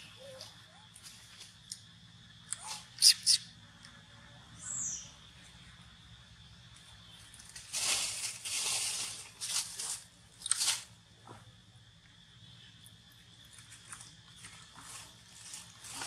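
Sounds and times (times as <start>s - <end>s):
dry rustling and crunching: 7.3s - 10.9s, 13.5s - 16.0s.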